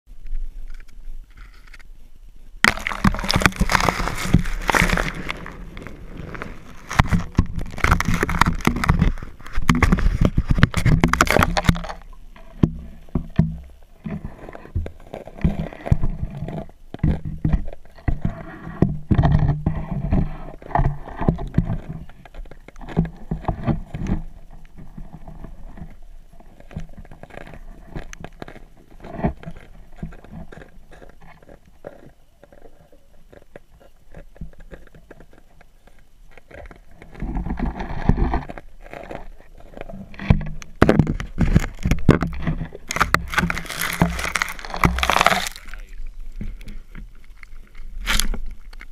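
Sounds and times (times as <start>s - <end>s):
pole scraping in ice hole: 2.7s - 13.0s, 36.8s - 45.9s.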